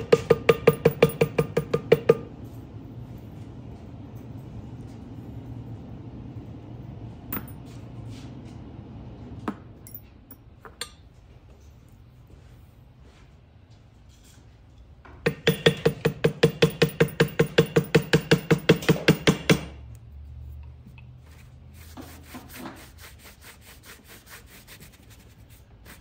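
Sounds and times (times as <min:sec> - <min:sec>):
mallet tapping leather stamping tool: 0:00.0 - 0:02.3, 0:15.2 - 0:19.8.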